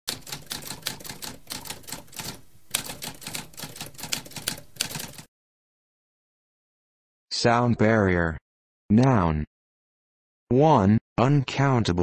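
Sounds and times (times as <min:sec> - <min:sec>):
typewriter typing: 0:00.1 - 0:05.3.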